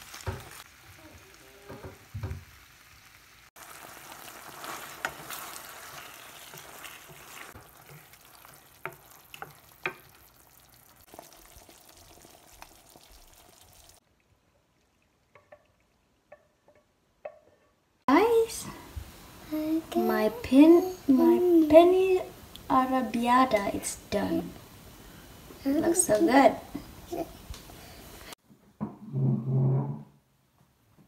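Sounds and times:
pasta sizzling in a frying pan: 0.0 - 14.0
wooden spoon tapping and scraping pan: 4.6 - 10.3, 15.3 - 17.8.

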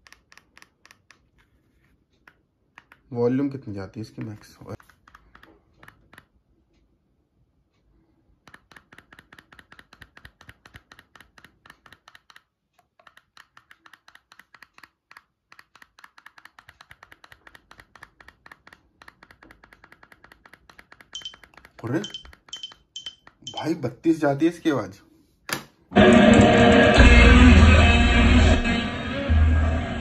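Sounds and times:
remote button clicking: 13.0 - 23.7.

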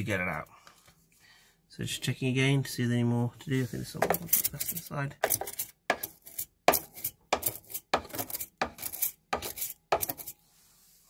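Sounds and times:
brush scraping metal fins: 3.5 - 10.4.

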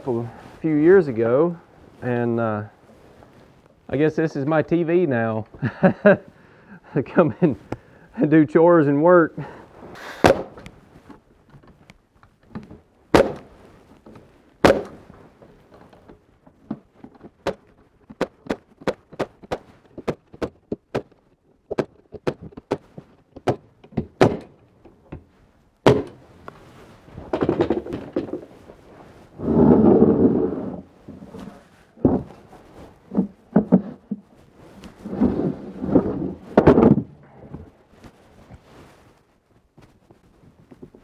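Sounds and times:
wooden boards knocking: 10.2 - 10.7, 12.5 - 13.5, 14.6 - 15.0, 16.6 - 26.2, 27.3 - 28.5, 32.0 - 32.4, 33.1 - 34.2, 35.8 - 37.7
wooden box scraping: 26.0 - 37.9.

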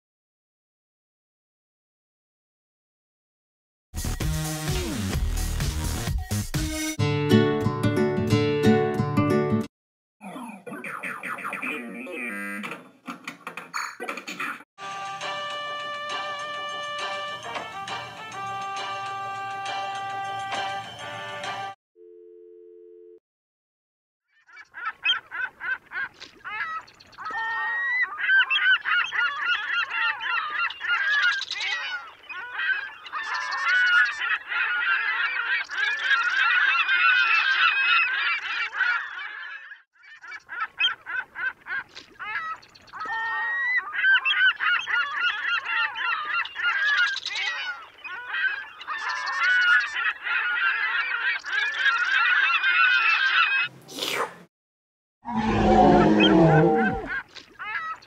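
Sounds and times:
flock of birds calling: 24.5 - 53.7, 55.3 - 58.0.

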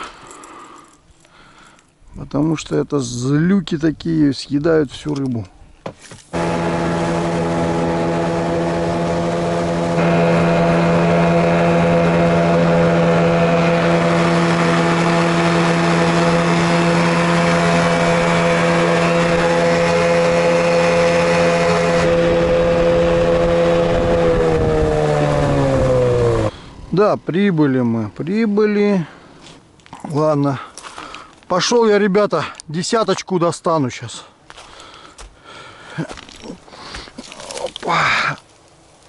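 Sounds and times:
engine running steadily: 6.3 - 27.0.

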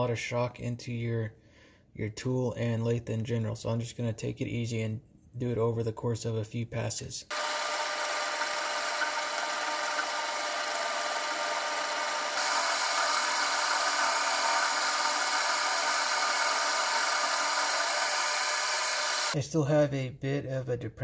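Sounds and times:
metal lathe cutting: 7.3 - 19.4.

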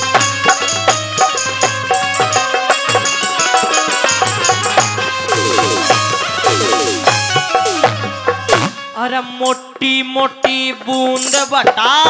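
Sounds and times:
melody of held notes: 0.2 - 9.0
drum stroke: 4.4 - 9.0.

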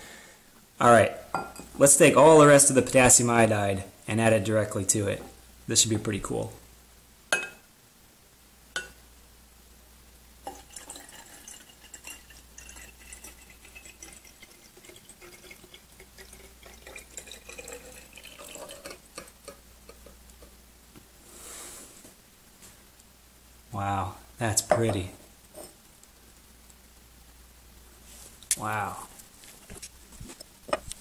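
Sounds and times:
glass clink: 1.3 - 1.7, 7.3 - 7.6, 8.8 - 9.0, 24.7 - 25.8
liquid trickling and splashing: 10.5 - 19.5.

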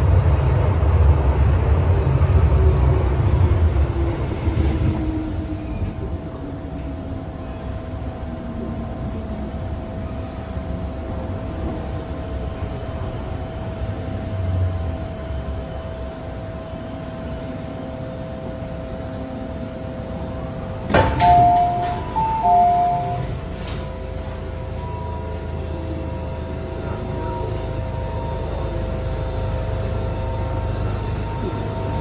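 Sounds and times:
train running whine: 0.0 - 32.0
train doors unlocking clunk: 20.8 - 24.0
doors sliding open: 20.8 - 24.4.

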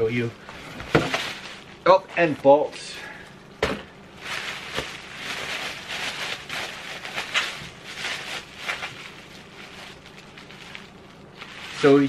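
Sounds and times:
bubble wrap crinkling: 0.8 - 2.4, 4.1 - 12.0.

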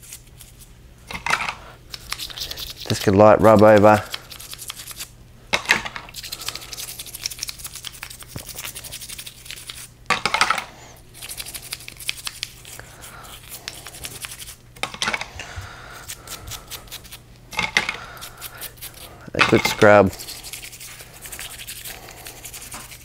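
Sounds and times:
toothbrush scrubbing metal gear: 1.9 - 5.1, 6.1 - 9.9, 11.2 - 14.6, 16.0 - 23.0.

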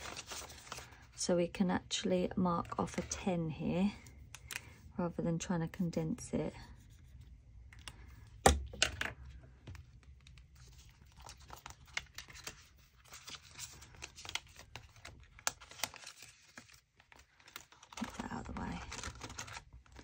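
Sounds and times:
paper and plastic rustling: 0.0 - 1.2, 9.7 - 20.0.

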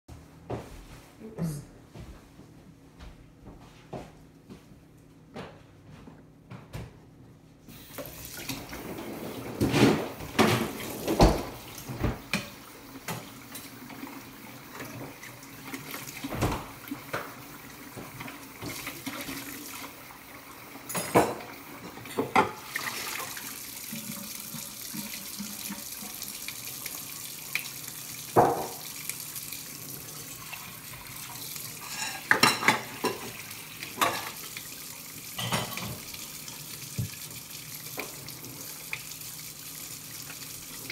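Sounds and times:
tap running into sink: 9.5 - 14.0, 28.3 - 29.1, 36.8 - 38.3
dishes and cutlery clattering: 20.9 - 22.6, 31.8 - 34.4, 35.4 - 36.0.

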